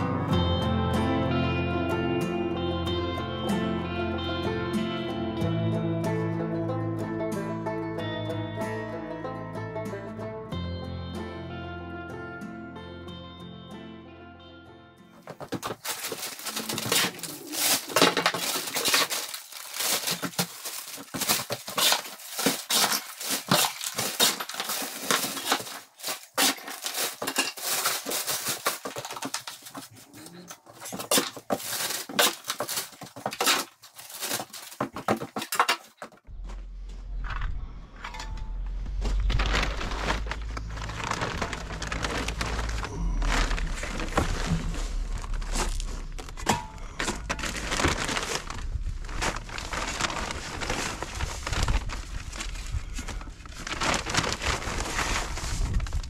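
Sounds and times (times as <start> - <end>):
plastic bags crinkling: 15.2 - 36.1, 39.0 - 56.0
rubble scraping and crunching: 15.2 - 56.0
low rumble: 36.3 - 56.0.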